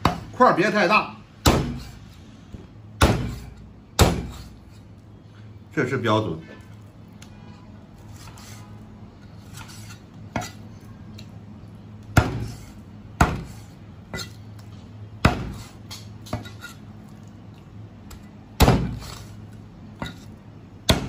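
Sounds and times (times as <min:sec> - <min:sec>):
faint steady hum: 0:00.0 - 0:21.0
cleaver chopping on wooden block: 0:01.4 - 0:01.9, 0:03.0 - 0:04.5, 0:12.2 - 0:12.6, 0:13.2 - 0:13.6, 0:15.2 - 0:15.7, 0:18.6 - 0:19.2.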